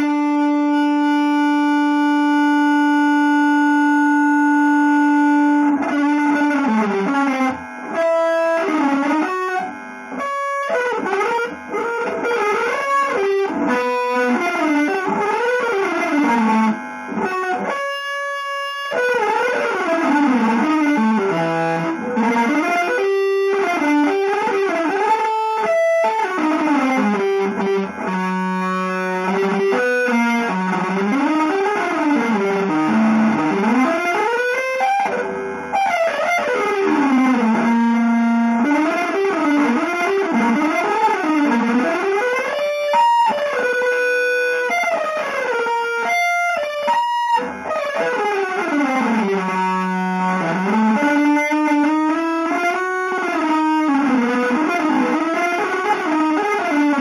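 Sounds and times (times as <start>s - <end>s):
distorted electric guitar lines: 0.0s - 57.0s.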